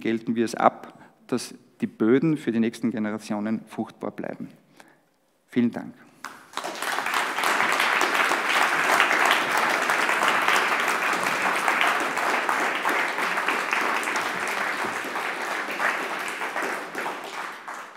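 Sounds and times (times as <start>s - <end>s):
audience applauding: 6.2s - 17.9s.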